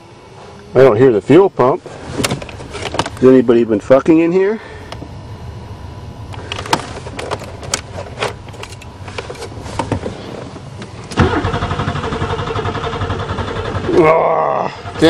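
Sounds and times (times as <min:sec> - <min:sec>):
car engine cranking without starting: 0:11.0 - 0:15.0.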